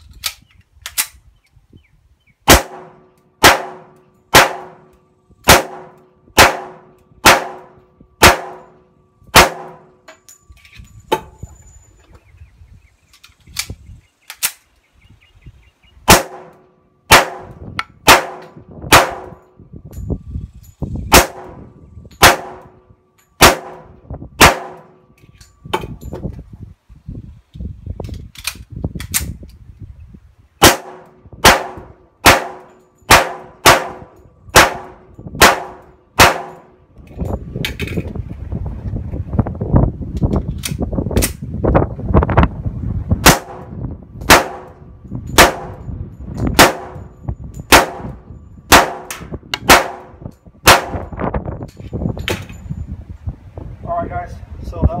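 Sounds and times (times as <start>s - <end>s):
pistol shots: 2.5s - 4.9s, 5.5s - 8.8s, 9.4s - 9.9s, 16.1s - 19.4s, 21.1s - 21.6s, 22.2s - 22.8s, 23.4s - 25.0s, 30.6s - 36.7s, 43.2s - 43.7s, 44.3s - 44.8s, 45.4s - 45.8s, 46.6s - 47.0s, 47.7s - 51.1s.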